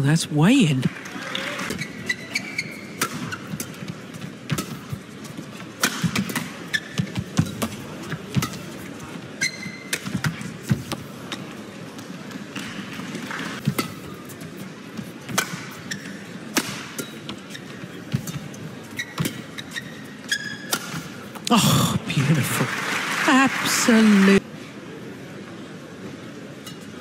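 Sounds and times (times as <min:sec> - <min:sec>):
shoe squeaks on court floor: 0:01.6 - 0:03.6, 0:06.6 - 0:07.6, 0:09.4 - 0:10.0, 0:15.7 - 0:16.3, 0:17.0 - 0:20.8.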